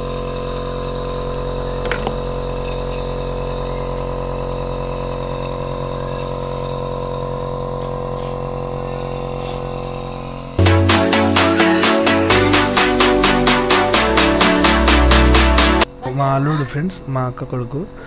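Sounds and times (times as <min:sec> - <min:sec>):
nebulizer compressor humming: 0:00.0 - 0:10.6.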